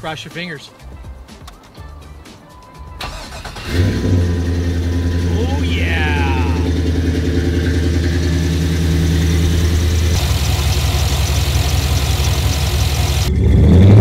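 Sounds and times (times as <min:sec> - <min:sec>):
car engine idling: 0:03.0 - 0:13.5.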